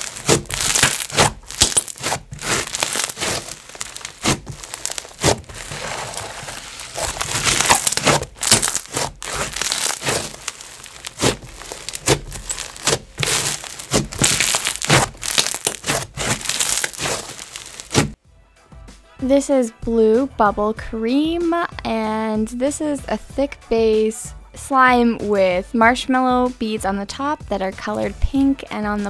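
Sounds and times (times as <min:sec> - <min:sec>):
slime crackling and popping: 0:00.0 - 0:18.2.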